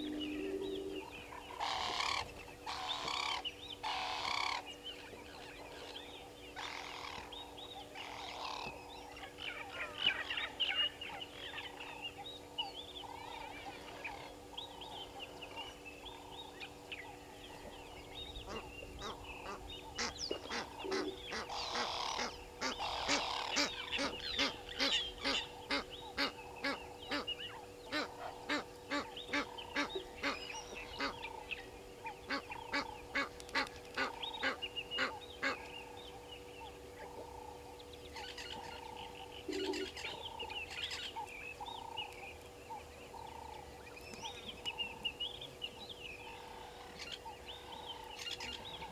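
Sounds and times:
goose honking: 0:00.0 - 0:04.6, 0:18.5 - 0:31.4, 0:32.0 - 0:35.7
small birds chirping: 0:00.0 - 0:48.9.

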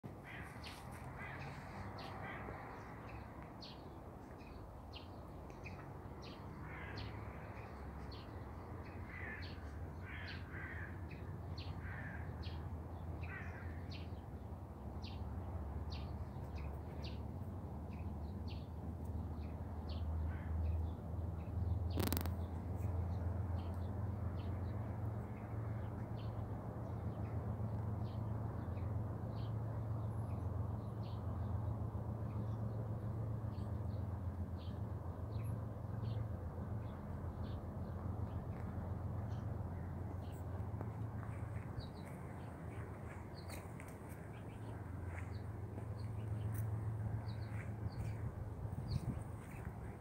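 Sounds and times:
birds chirping: 0:33.5 - 0:50.0.

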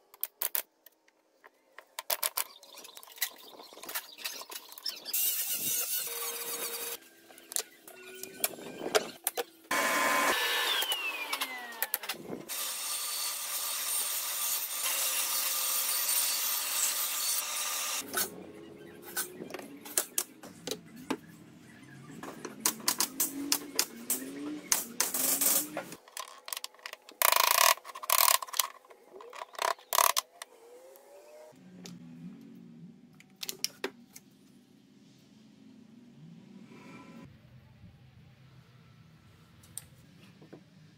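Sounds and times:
electric power tool on wood: 0:09.7 - 0:18.0.

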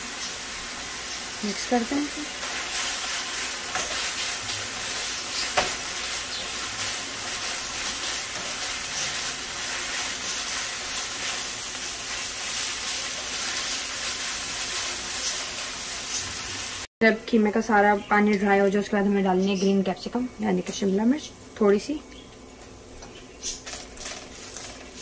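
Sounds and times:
meat sizzling in a frying pan: 0:00.0 - 0:16.9, 0:23.4 - 0:25.0
spatula scraping a pan: 0:02.4 - 0:15.7.

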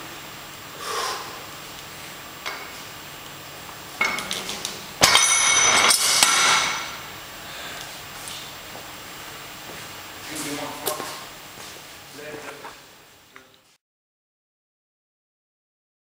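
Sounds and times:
weight plates clinking: 0:04.0 - 0:07.0.

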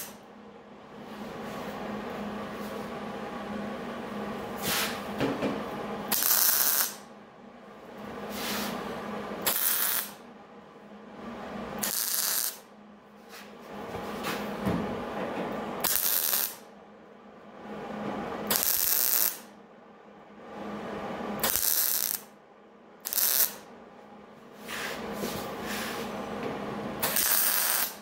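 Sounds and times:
welding arc crackling: 0:06.1 - 0:07.1, 0:09.4 - 0:10.2, 0:11.8 - 0:12.6, 0:15.8 - 0:16.6, 0:18.5 - 0:19.5, 0:21.4 - 0:22.3, 0:23.0 - 0:23.7, 0:27.0 - 0:28.0.

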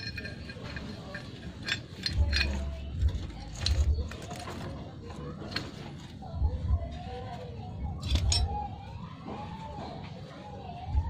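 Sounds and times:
chain clinking on sprocket: 0:00.0 - 0:03.9, 0:08.0 - 0:08.5.

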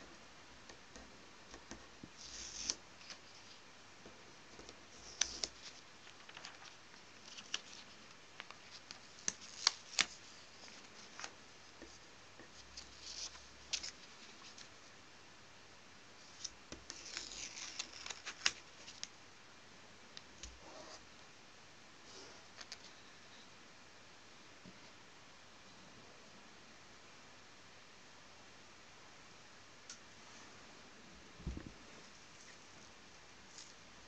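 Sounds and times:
paper rustling: 0:04.6 - 0:14.7, 0:16.3 - 0:19.1.

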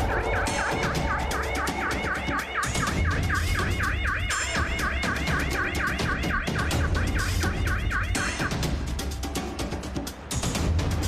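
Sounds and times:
police siren yelping: 0:00.0 - 0:08.6.

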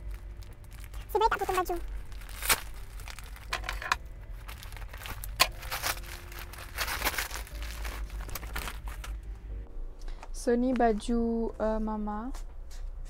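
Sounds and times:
plastic crinkling: 0:00.0 - 0:09.3.

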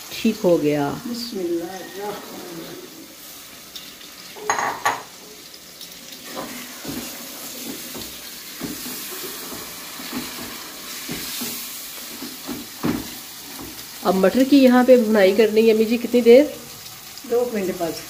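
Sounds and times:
masala sizzling: 0:00.0 - 0:18.0.

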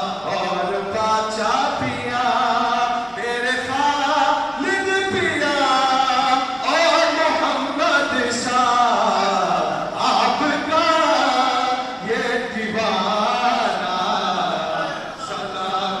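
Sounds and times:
man singing a cappella: 0:00.0 - 0:16.0.

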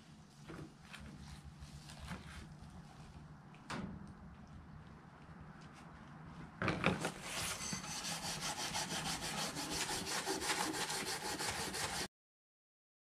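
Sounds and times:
scouring pad scrubbing wet wood: 0:08.0 - 0:12.1.

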